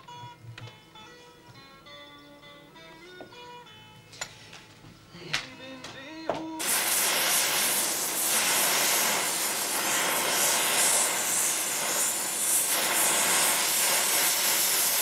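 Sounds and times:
welding torch flame hissing: 0:06.6 - 0:15.0.

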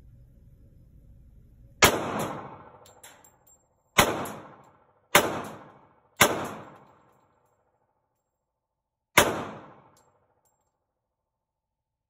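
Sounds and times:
pistol shots with echo: 0:01.8 - 0:02.9, 0:04.0 - 0:07.0, 0:09.2 - 0:10.1.

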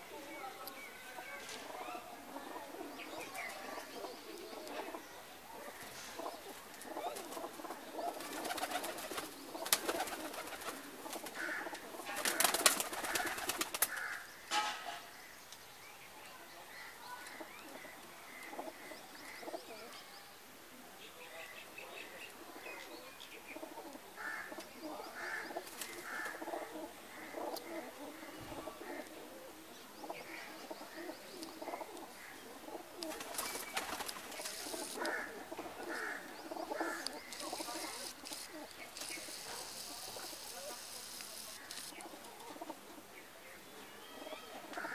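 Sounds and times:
pigeons cooing: 0:01.7 - 0:14.2, 0:23.4 - 0:43.2.

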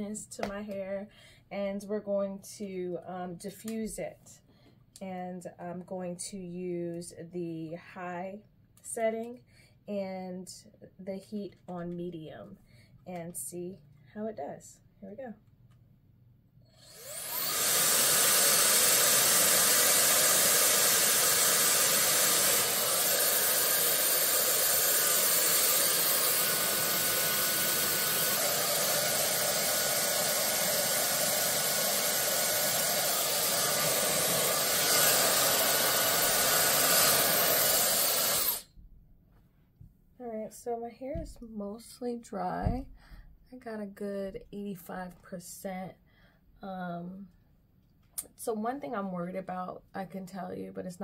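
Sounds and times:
hair dryer blowing: 0:16.8 - 0:38.7
hair dryer spin-up whine: 0:16.8 - 0:38.7.

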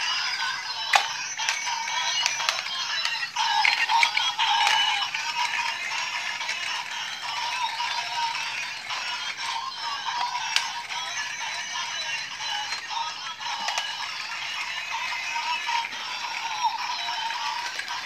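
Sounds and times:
toy electronic tune: 0:00.0 - 0:18.0
plastic rattling and clicking: 0:00.9 - 0:01.6.

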